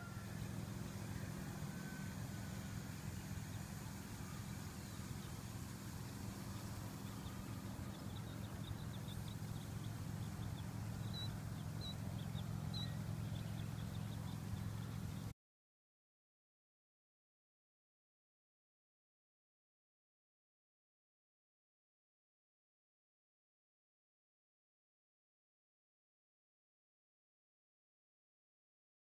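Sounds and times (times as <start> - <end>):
faint high chirps: 0.0 - 15.3
truck engine droning: 0.0 - 15.3.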